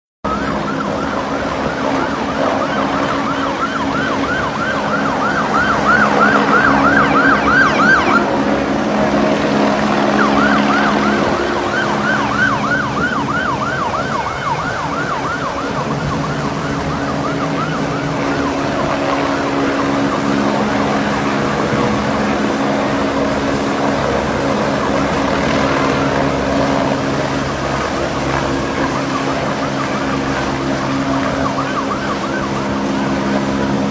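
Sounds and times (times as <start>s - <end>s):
engine drone: 0.2s - 33.9s
siren yelping: 0.3s - 33.9s
wind and water rushing: 0.3s - 33.9s.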